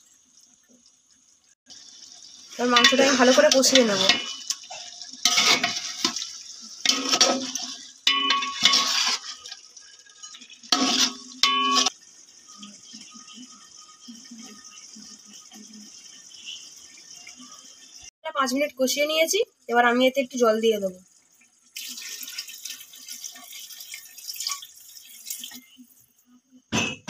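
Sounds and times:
meat sizzling: 0:00.0 - 0:18.1, 0:21.6 - 0:25.6
metal spatula scraping pot: 0:02.6 - 0:12.0.

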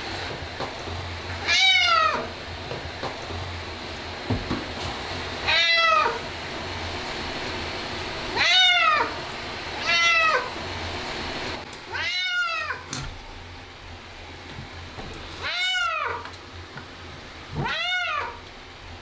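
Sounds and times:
cat meowing loudly: 0:01.4 - 0:02.3, 0:05.4 - 0:06.2, 0:08.4 - 0:09.2, 0:09.8 - 0:10.5, 0:11.9 - 0:12.9, 0:15.4 - 0:16.2, 0:17.6 - 0:18.4.

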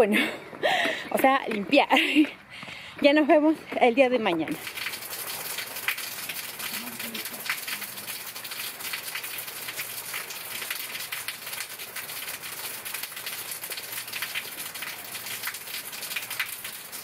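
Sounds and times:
raindrops pattering on surfaces: 0:04.0 - 0:17.0
steady rain falling: 0:04.6 - 0:17.0.

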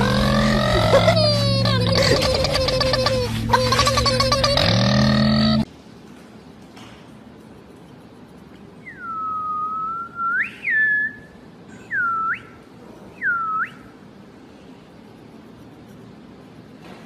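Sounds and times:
person whistling: 0:08.9 - 0:11.3.

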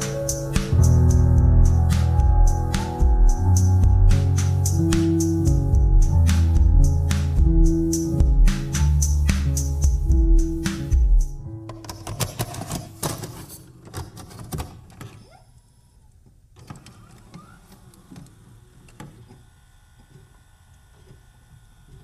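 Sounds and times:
music: 0:00.0 - 0:13.2.

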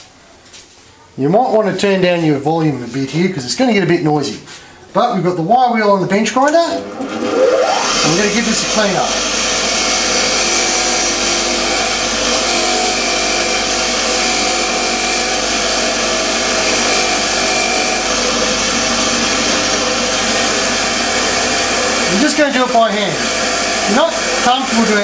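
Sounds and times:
faint motor hum: 0:06.4 - 0:25.0
bench grinder wire wheel whirring: 0:06.6 - 0:25.0.

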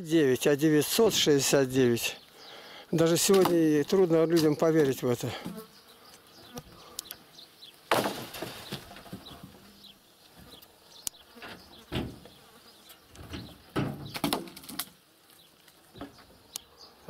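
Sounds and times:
wooden poles clattering onto pile: 0:03.1 - 0:03.8, 0:07.9 - 0:09.7, 0:13.2 - 0:15.0.

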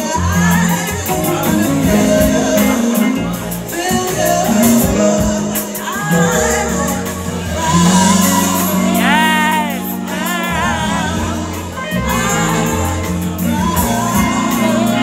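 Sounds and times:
band playing: 0:00.0 - 0:15.0
woman singing into microphone: 0:04.2 - 0:15.0.

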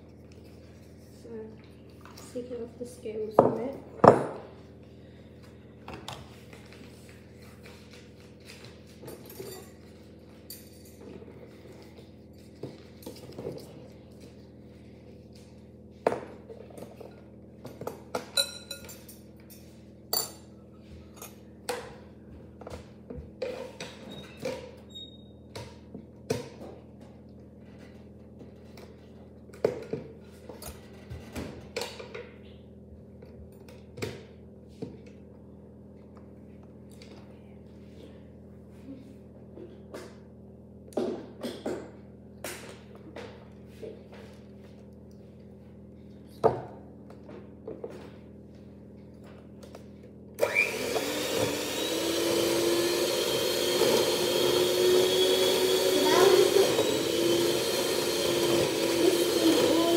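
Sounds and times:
kitchen utensils and dishes clinking: 0:09.0 - 0:11.3, 0:17.8 - 0:20.5.

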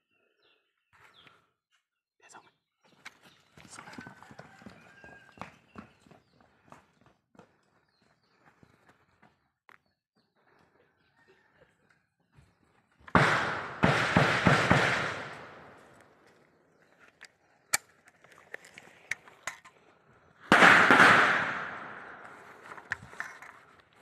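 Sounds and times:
rifle shots echoing: 0:13.1 - 0:15.9, 0:20.5 - 0:22.6.

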